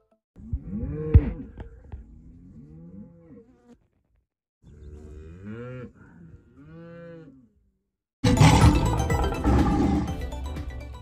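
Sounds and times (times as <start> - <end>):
cattle mooing: 2.0 - 3.8, 4.7 - 7.6, 8.2 - 10.2.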